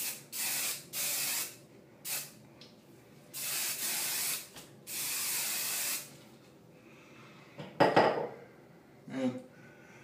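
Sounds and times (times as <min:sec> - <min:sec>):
aerosol can spraying: 0:00.0 - 0:02.3, 0:03.4 - 0:06.1.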